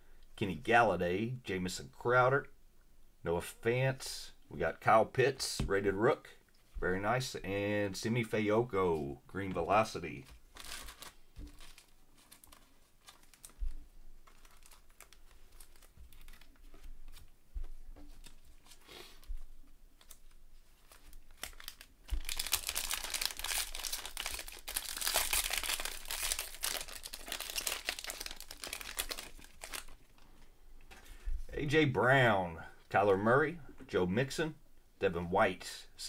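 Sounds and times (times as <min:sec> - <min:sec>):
plastic wrapper crinkling: 0:10.1 - 0:17.4, 0:20.0 - 0:30.4.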